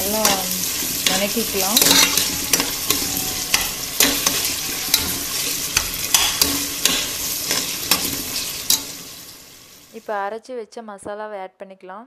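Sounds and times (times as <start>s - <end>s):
metal spatula scraping pot: 0.0s - 9.2s
vegetables sizzling in oil: 0.0s - 10.1s.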